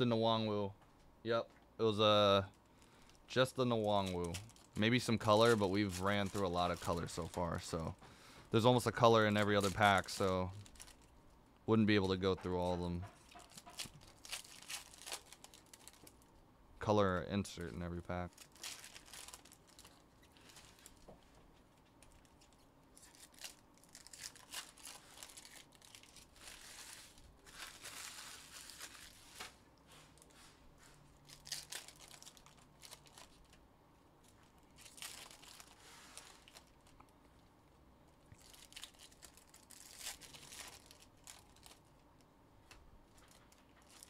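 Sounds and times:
card wrappers tearing and crinkling: 2.8 - 8.0, 8.6 - 11.1, 11.9 - 16.3, 17.4 - 21.1, 22.0 - 29.6, 31.2 - 33.6, 34.4 - 37.0, 38.3 - 42.0, 43.1 - 44.0.

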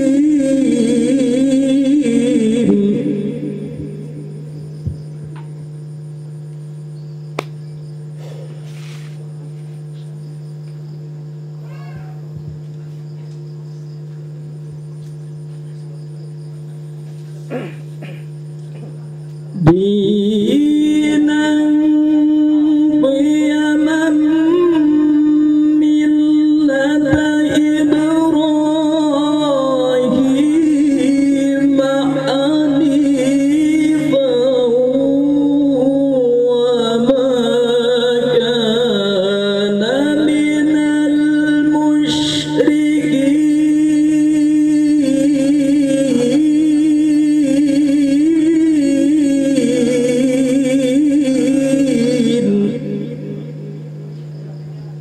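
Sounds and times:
sound system electrical hum: 0.0 - 55.0
man reciting through microphone: 17.5 - 55.0.

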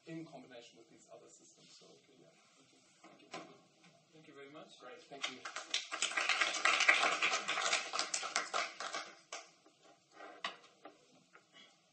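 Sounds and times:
audience applauding: 5.2 - 9.5.

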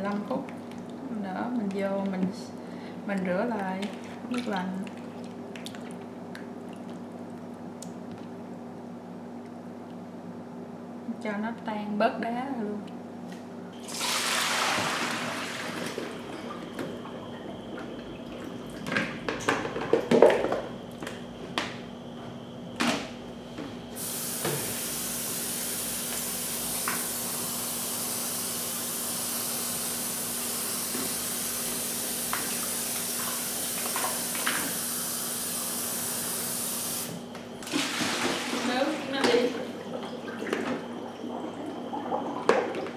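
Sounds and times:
kitchen faucet running: 24.0 - 37.1.

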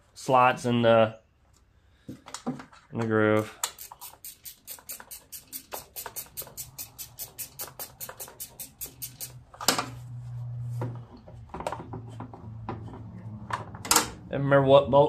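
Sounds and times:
ratchet wrench clicking: 3.6 - 9.4.

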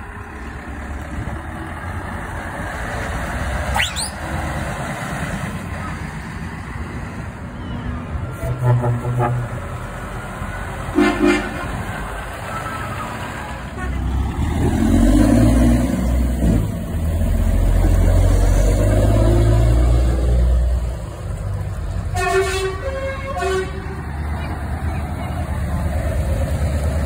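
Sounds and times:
truck diesel engine passing: 0.0 - 27.0
lorry horn toot: 8.3 - 9.9, 10.9 - 11.9, 22.1 - 24.0.

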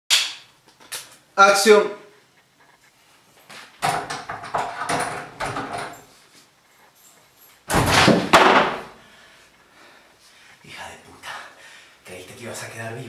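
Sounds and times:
door banging open: 3.8 - 6.0, 7.7 - 9.0
knocks and rattles on wooden door: 3.8 - 6.0, 7.7 - 8.9.

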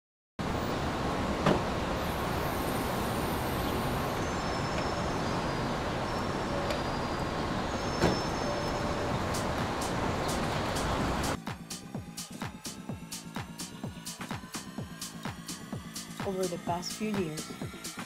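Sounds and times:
traffic noise: 0.4 - 11.4.

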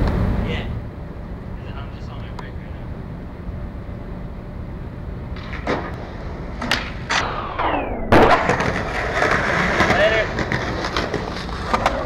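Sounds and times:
skateboard wheels rolling on concrete: 0.0 - 12.0
skateboard grinding down rail: 5.4 - 12.0
skateboard hard landing: 8.1 - 12.0
skateboard knocking on rail: 8.5 - 12.0.

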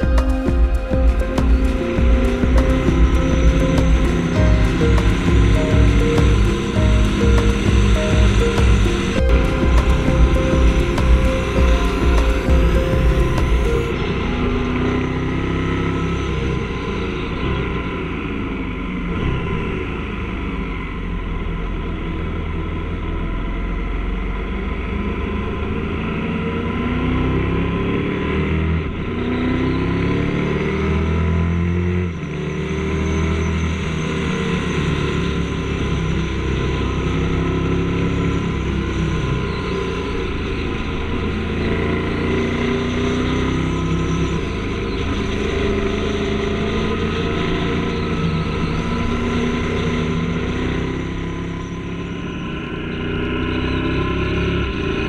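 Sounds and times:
motorcycle engine running: 0.0 - 26.6.

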